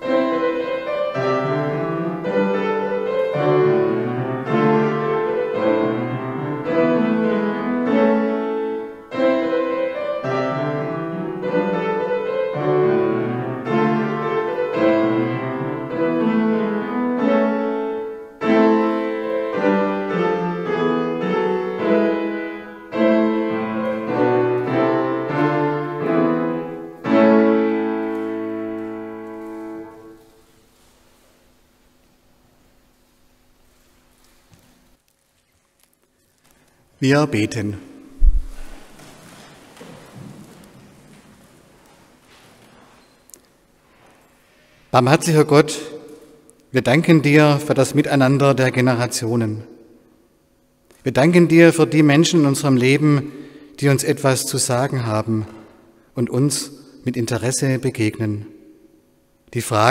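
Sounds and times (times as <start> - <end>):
piano music: 0.0 - 30.5.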